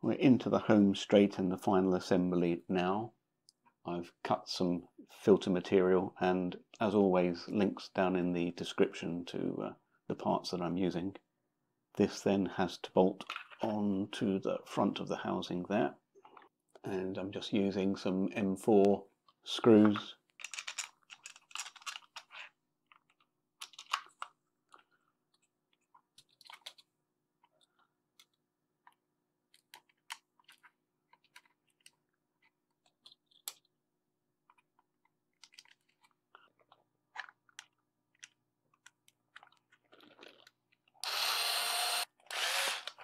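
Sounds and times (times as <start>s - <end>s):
plastic parts clicking and scraping: 13.2s - 13.7s, 19.2s - 33.8s, 34.4s - 41.1s, 42.2s - 43.0s.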